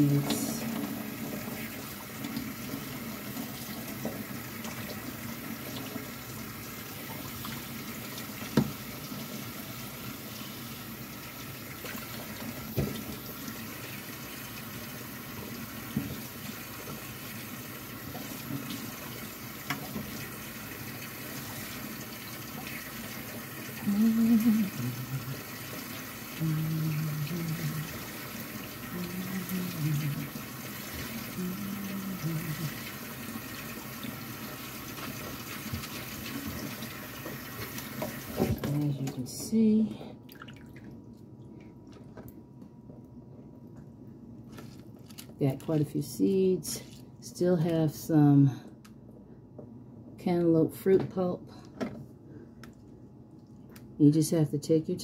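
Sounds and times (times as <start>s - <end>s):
faucet running into sink: 0.0s - 39.1s
person humming: 23.8s - 25.4s, 26.4s - 28.0s, 28.9s - 30.4s, 31.3s - 32.8s.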